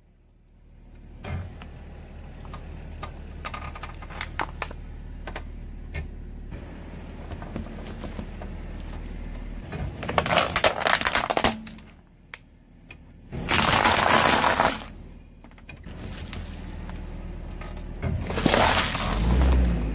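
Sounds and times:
low steady hum: 0.0 - 19.9
plastic cracking under tyre: 3.4 - 4.8, 7.2 - 12.5, 13.4 - 15.0, 17.7 - 19.9
tyre crunching objects: 6.6 - 12.0, 13.4 - 15.0, 15.8 - 19.9.

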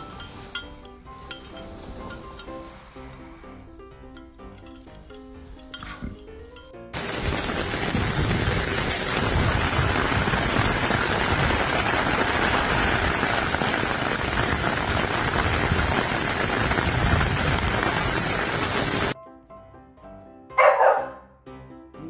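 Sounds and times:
heavy rain on pavement: 7.0 - 19.2.

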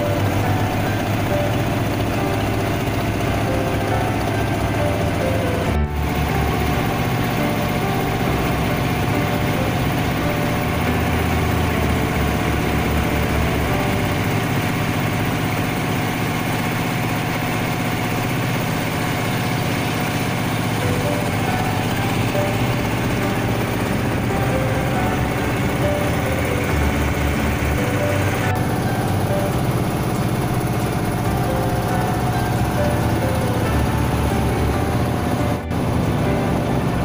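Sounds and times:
boat engine running: 0.0 - 37.0.

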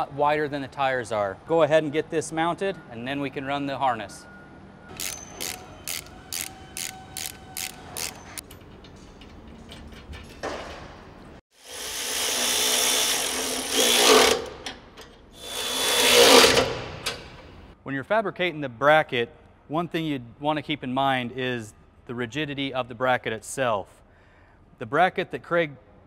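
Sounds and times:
power tool running: 4.9 - 8.4, 11.6 - 14.5, 15.4 - 16.8
ratchet wrench clicking: 4.9 - 8.6.

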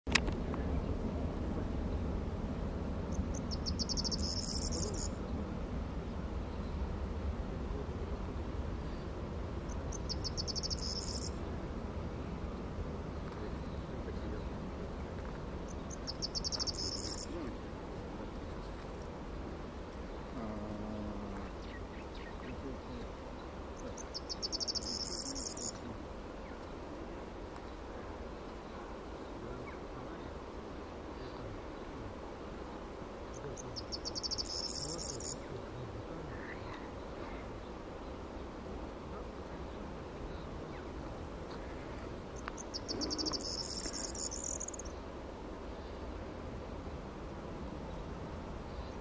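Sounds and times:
low outdoor rumble: 0.1 - 49.0
small animal chirping trill: 3.1 - 5.2, 9.7 - 11.4, 15.8 - 17.3, 23.8 - 25.8, 33.6 - 35.4, 42.4 - 44.9
brief low hum: 20.3 - 21.8.

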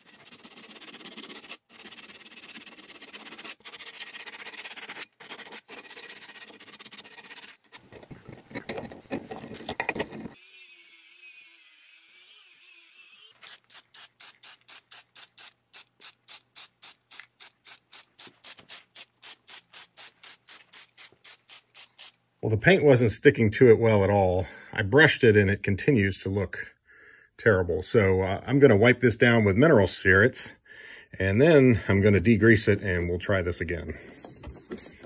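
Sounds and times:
sandpaper and wire brush scraping metal: 0.0 - 7.8, 31.2 - 35.0.

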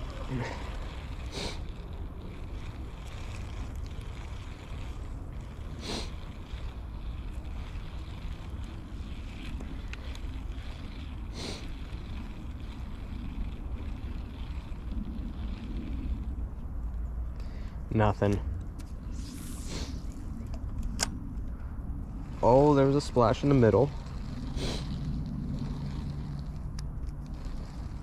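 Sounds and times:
wind buffeting microphone: 0.0 - 28.0
short sharp hissy noises: 1.3 - 1.7, 18.8 - 20.2.

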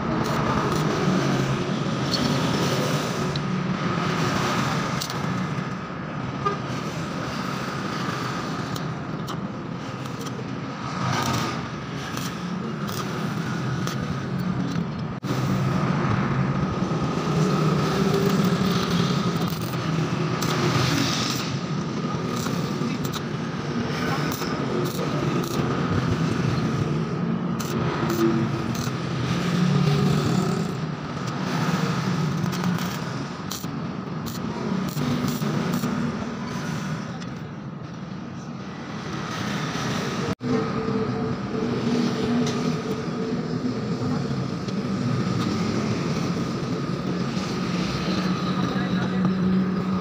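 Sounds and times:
road traffic noise: 0.0 - 50.0
small metal parts clicking: 18.1 - 19.8, 27.6 - 29.0, 32.4 - 36.0.

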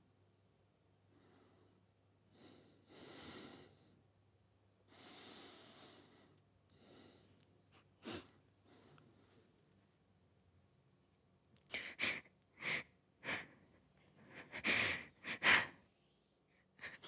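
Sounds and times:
person breathing quietly: 1.0 - 4.0, 4.8 - 9.7, 11.7 - 17.0.

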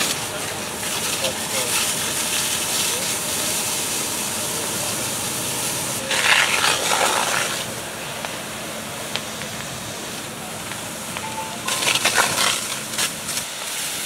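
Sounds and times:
steam hissing: 11.3 - 14.0.

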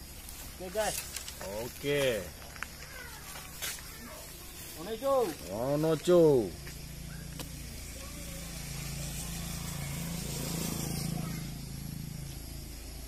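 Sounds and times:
faint outdoor hiss: 0.0 - 13.0
distant engine humming: 3.8 - 13.0.

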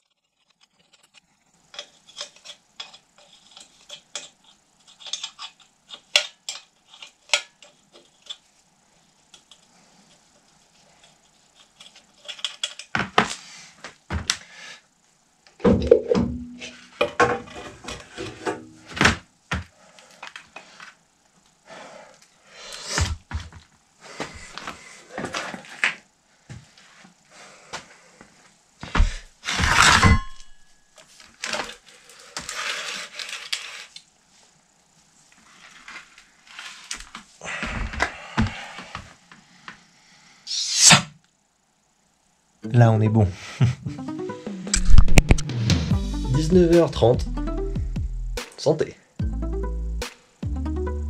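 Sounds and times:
hand tools clicking on metal: 1.7 - 8.4.

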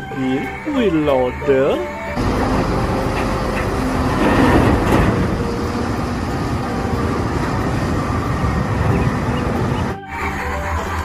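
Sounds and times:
wheel loader diesel engine running: 0.0 - 11.0.

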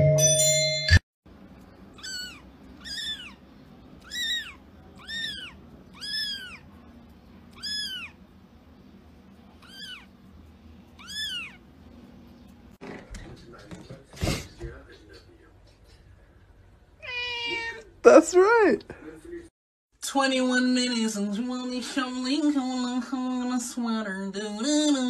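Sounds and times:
kitten meowing: 1.9 - 3.4, 4.0 - 6.7, 7.5 - 8.2, 9.6 - 10.1, 11.0 - 11.6, 17.0 - 17.9.

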